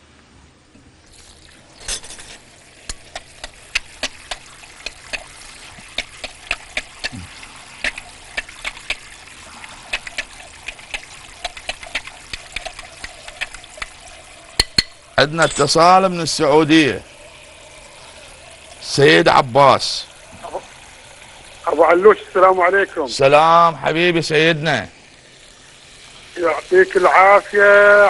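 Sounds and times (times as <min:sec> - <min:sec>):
spoon clicking against container: 0:02.9 - 0:07.2, 0:09.9 - 0:14.0, 0:14.6 - 0:15.0.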